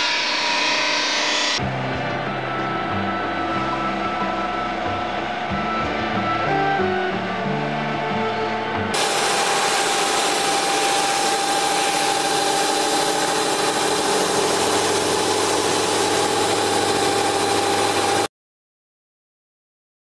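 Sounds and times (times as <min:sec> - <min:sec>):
polishing machine whining: 0:00.0 - 0:18.3.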